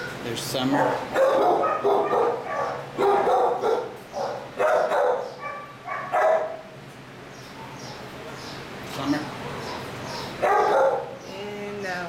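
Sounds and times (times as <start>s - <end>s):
dog barking: 0.6s - 6.7s, 9.4s - 11.2s.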